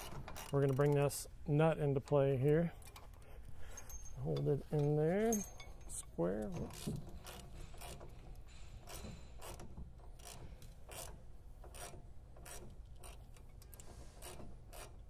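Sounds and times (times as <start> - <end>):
socket ratchet clicking: 6.6 - 15.0.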